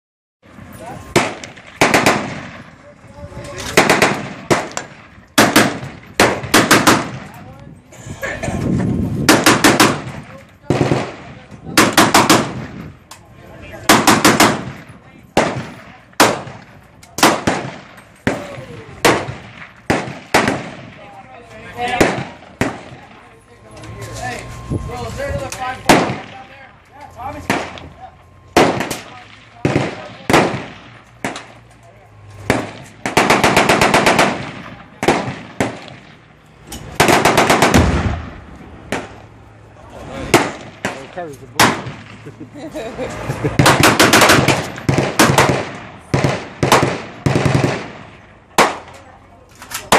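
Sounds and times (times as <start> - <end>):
machine-gun fire: 1.1 - 2.7, 3.7 - 7.3, 9.2 - 12.8, 13.8 - 21.0, 21.9 - 23.1, 25.9 - 26.4, 28.6 - 31.6, 32.4 - 36.2, 36.9 - 39.2, 40.3 - 42.2, 43.6 - 48.9
rifle gunshots with echo: 1.1 - 2.8, 3.6 - 7.4, 9.2 - 12.8, 13.8 - 21.1, 21.8 - 23.2, 25.8 - 26.6, 27.3 - 31.6, 32.4 - 36.2, 36.9 - 39.3, 40.3 - 42.2, 43.6 - 49.0.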